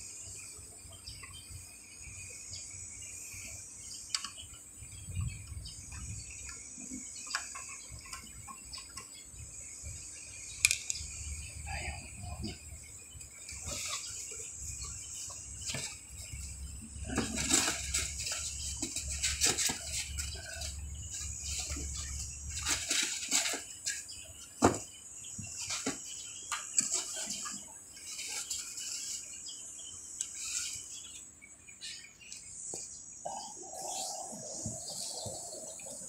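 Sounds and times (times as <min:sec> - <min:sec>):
faint high chirping: 0:00.0 - 0:36.0.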